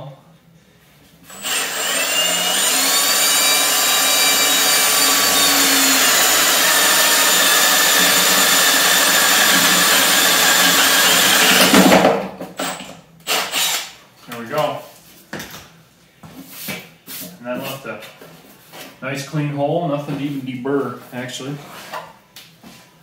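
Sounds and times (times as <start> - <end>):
cordless drill boring through plastic: 1.3 - 11.8, 12.6 - 13.9.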